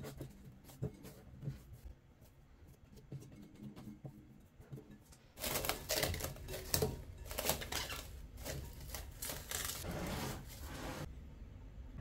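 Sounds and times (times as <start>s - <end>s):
cling film crinkling: 5.4s - 9.8s.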